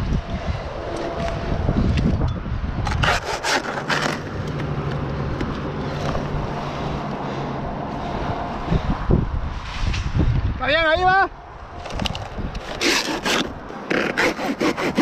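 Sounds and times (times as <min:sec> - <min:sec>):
wind buffeting microphone: 0:00.0 - 0:13.7
dry palm fronds scraping: 0:03.0 - 0:04.4.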